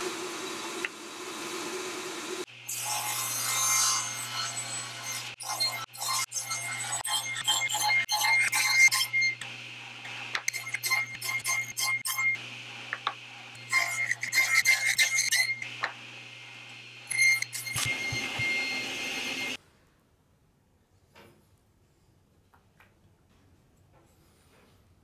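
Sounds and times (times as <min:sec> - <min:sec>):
saw blade cutting whine: 0:00.0 - 0:19.6
table saw hum: 0:00.0 - 0:19.6.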